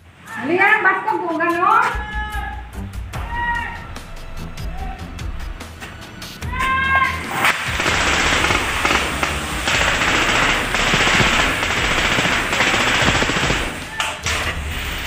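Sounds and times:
automatic rifle fire: 7.5 - 14.0.

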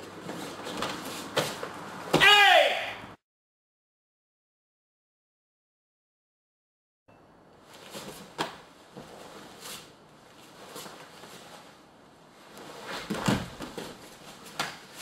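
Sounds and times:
body thudding onto mat: 13.0 - 14.0.

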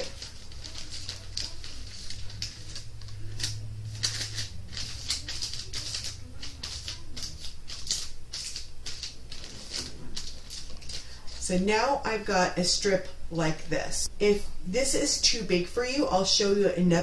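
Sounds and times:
parchment paper crinkling: 0.0 - 11.7.

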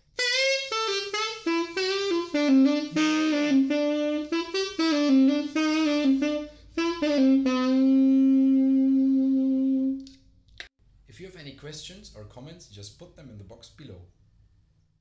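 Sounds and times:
bamboo saxophone melody: 0.0 - 10.1.

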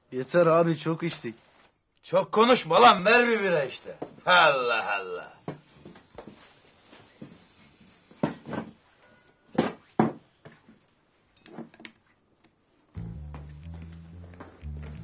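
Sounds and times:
low background music: 13.0 - 15.0.

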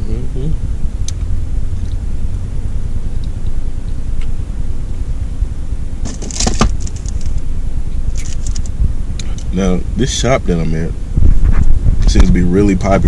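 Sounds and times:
car cabin rumble: 0.0 - 13.0
clinking rattling clicks: 6.1 - 7.4, 8.1 - 8.7.

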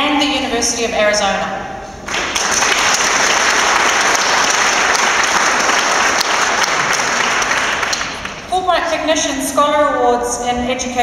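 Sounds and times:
audience applauding: 2.1 - 8.5.

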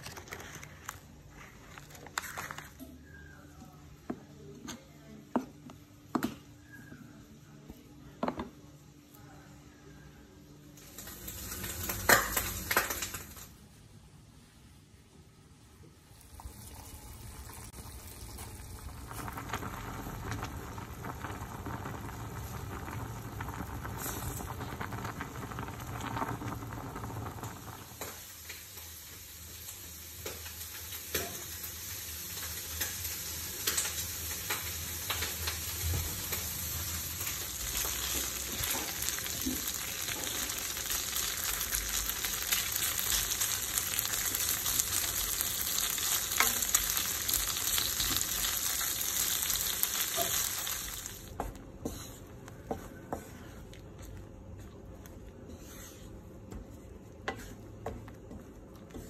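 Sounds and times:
wooden spoon stirring: 0.0 - 3.4, 50.1 - 59.0
pasta boiling in water: 0.0 - 3.8, 10.7 - 13.8, 15.0 - 59.0
ham sizzling in a pan: 10.8 - 13.6, 16.0 - 53.4.

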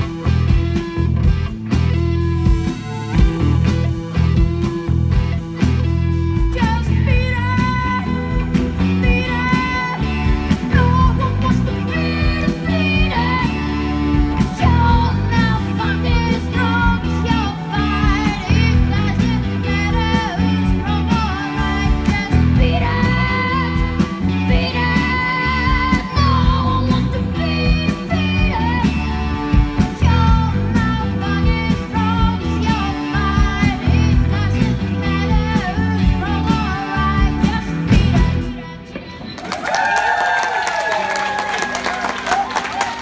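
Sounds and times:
drum kit beat: 0.0 - 38.4
bass guitar: 0.0 - 43.0
electric guitar: 0.0 - 43.0
person singing: 6.4 - 39.6.

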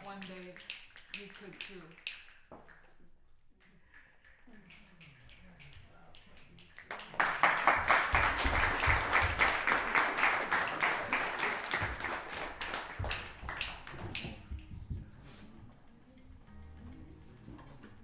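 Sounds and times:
audience applauding: 6.6 - 14.2.

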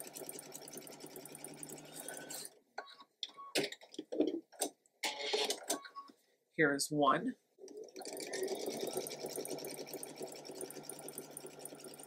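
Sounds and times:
sewing machine stitching: 0.0 - 2.5, 7.7 - 12.0.

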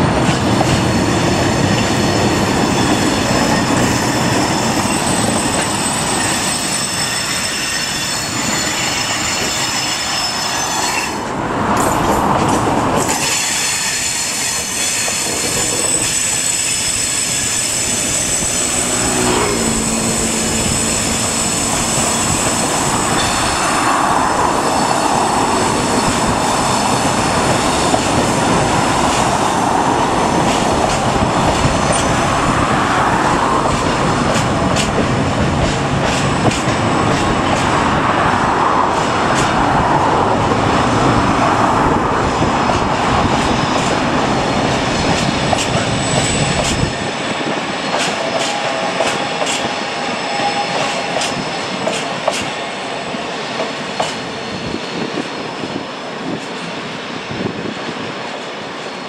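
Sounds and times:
train wheels rumbling on rail: 0.0 - 59.0
wheels squealing on curve: 1.2 - 11.2, 13.2 - 28.1, 48.3 - 51.8.

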